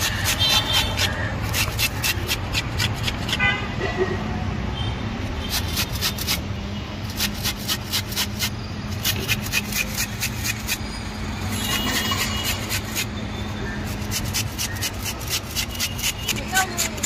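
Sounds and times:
cauliflower grating on metal grater: 0:00.0 - 0:03.5, 0:05.3 - 0:06.4, 0:07.0 - 0:10.8, 0:11.5 - 0:13.2, 0:13.8 - 0:17.0.

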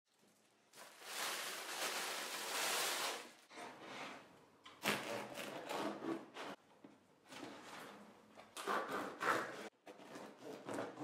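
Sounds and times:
dry rustling of bread: 0:00.3 - 0:03.4.

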